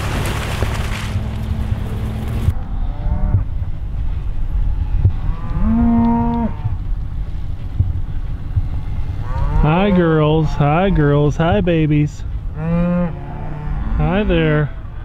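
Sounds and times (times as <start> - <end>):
cattle mooing: 4.9 - 6.8, 9.2 - 11.5, 12.6 - 15.0.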